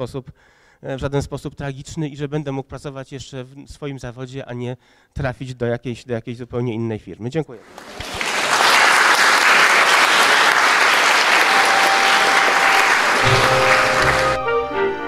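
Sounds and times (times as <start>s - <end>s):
audience applauding: 7.6s - 14.6s.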